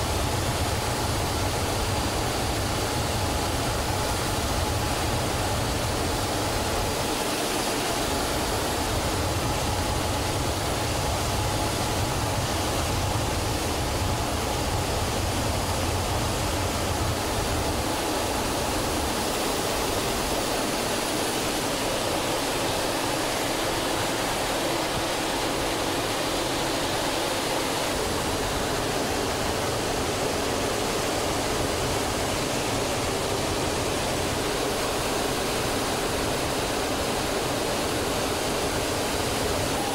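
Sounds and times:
faint steady whine: 0:00.0 - 0:39.9.

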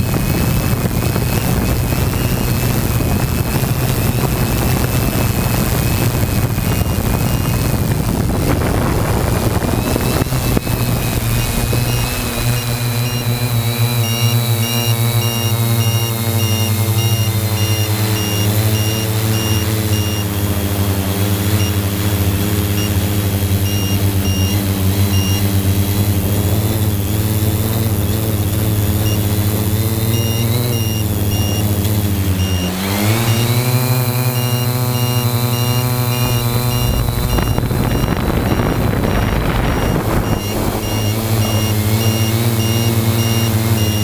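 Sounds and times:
drone motors and propellers droning: 0:00.0 - 0:44.0
faint high beeping: 0:05.9 - 0:07.8, 0:09.4 - 0:20.4, 0:22.7 - 0:25.5, 0:29.0 - 0:44.0.

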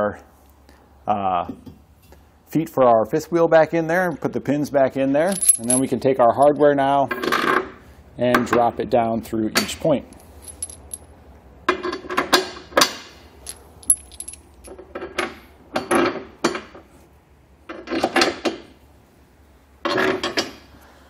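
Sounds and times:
metal parts clinking: 0:05.2 - 0:05.9, 0:10.1 - 0:11.1, 0:13.4 - 0:14.8.

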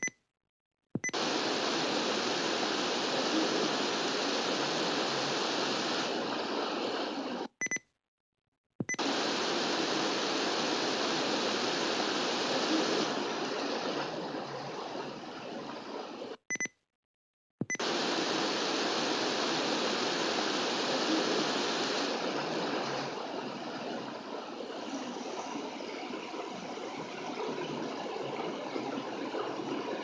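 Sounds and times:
radio static hiss: 0:01.1 - 0:07.5, 0:09.0 - 0:16.4, 0:17.8 - 0:30.0
short high beeps: 0:16.5 - 0:16.8.

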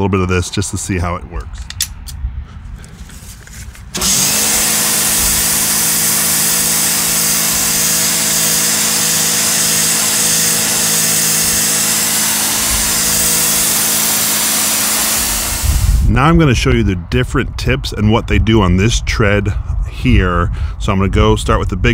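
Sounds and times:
pressure washer motor hum: 0:02.8 - 0:16.1
water jet hissing on concrete: 0:04.0 - 0:16.1.

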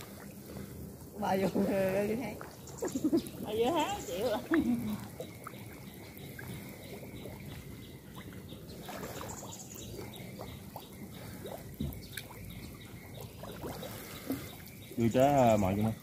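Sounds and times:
small splashes: 0:00.0 - 0:16.0
water sloshing and trickling: 0:00.0 - 0:16.0.

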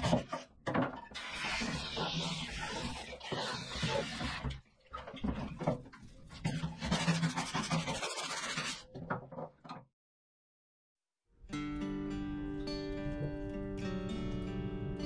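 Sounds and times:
brush scrubbing wet metal floor: 0:06.1 - 0:08.9.

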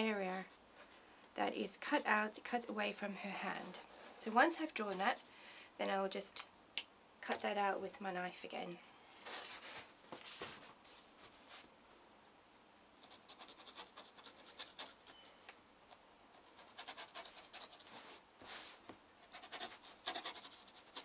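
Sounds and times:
knife scratching packing foam: 0:13.0 - 0:15.0, 0:16.4 - 0:18.0, 0:19.3 - 0:21.0.

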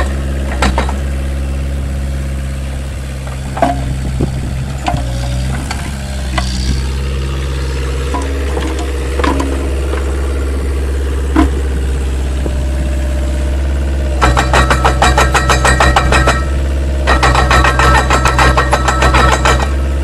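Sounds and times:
diesel excavator engine running: 0:00.0 - 0:20.0
boom and bucket clanks: 0:03.3 - 0:04.1, 0:08.1 - 0:10.2, 0:11.3 - 0:11.8
steel tracks clattering: 0:14.2 - 0:19.8.

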